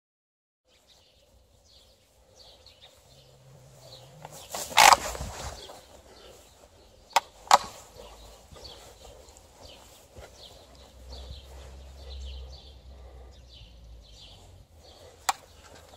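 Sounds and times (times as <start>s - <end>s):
faint birds chirping: 0.6s - 15.9s
rustling hedge leaves and branches: 0.7s - 12.5s
sharp clicks: 7.1s - 8.2s, 15.2s - 15.9s.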